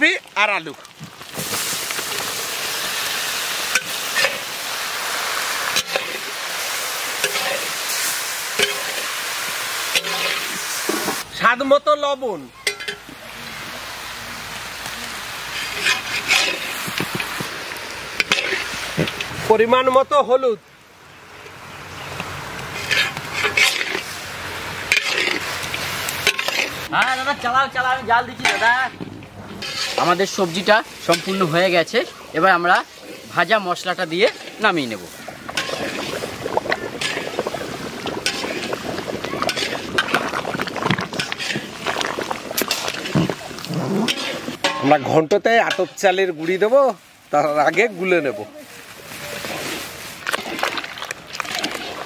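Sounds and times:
vegetables sizzling in hot oil: 0.0s - 11.6s, 12.3s - 28.9s, 29.6s - 52.0s
metal spatula scraping pan: 3.7s - 4.5s, 5.7s - 6.3s, 7.2s - 9.2s, 9.9s - 11.2s, 15.5s - 17.4s, 18.2s - 19.3s, 22.7s - 24.2s, 24.9s - 27.6s, 28.4s - 28.9s, 29.5s - 38.8s, 39.4s - 40.4s, 41.0s - 46.3s.

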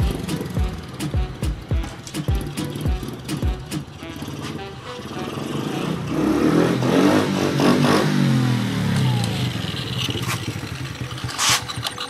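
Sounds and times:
small motorbike engine running: 0.0s - 1.0s, 4.0s - 12.0s.

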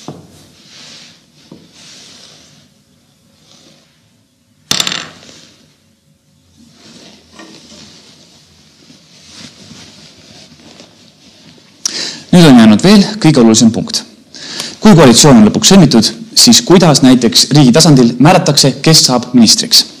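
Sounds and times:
chess pieces clattering on board: 4.7s - 5.2s.

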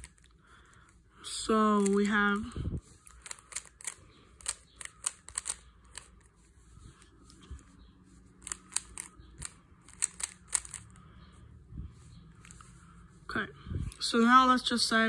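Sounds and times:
plastic puzzle cube clicks: 3.1s - 6.2s, 8.4s - 11.0s.

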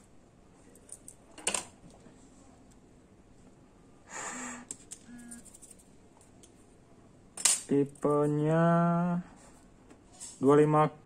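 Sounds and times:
breath out through nose: 4.1s - 4.7s.

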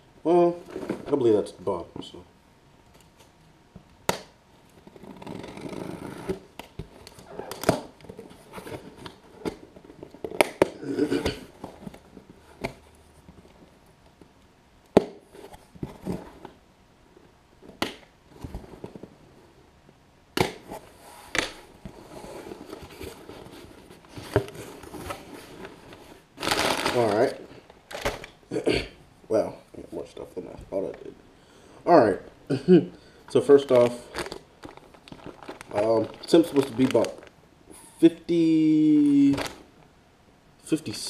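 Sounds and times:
cardboard scraping and tearing: 4.9s - 6.5s.

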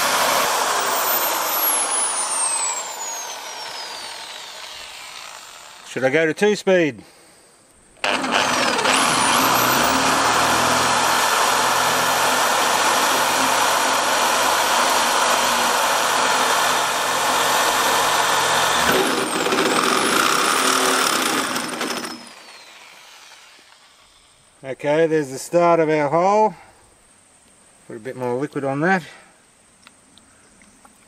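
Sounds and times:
drill hole saw cutting steel: 0.0s - 6.0s, 8.0s - 24.3s.

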